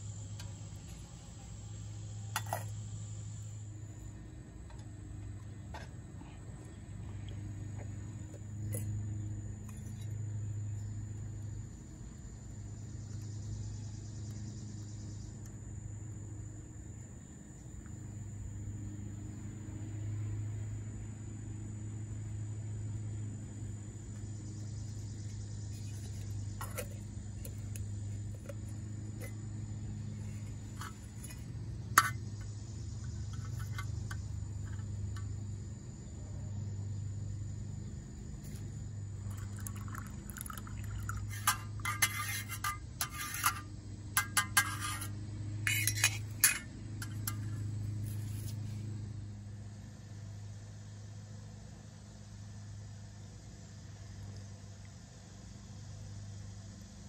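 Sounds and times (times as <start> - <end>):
insects chirring: 0.0 - 57.0
low steady hum: 0.0 - 57.0
metal cup clinking: 2.3 - 2.7, 26.6 - 28.6, 32.0 - 32.3, 39.3 - 47.6.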